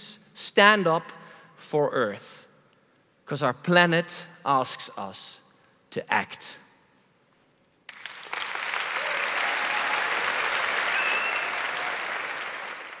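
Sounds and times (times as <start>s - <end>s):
audience applauding: 7.9s - 13.0s.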